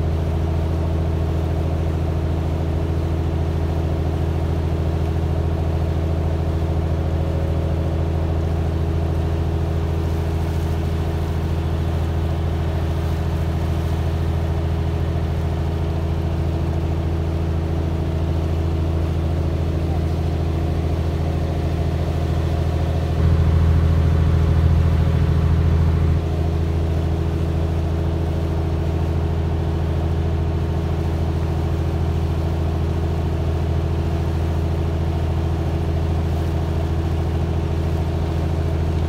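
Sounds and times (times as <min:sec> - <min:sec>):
boat engine running: 0:00.0 - 0:39.0.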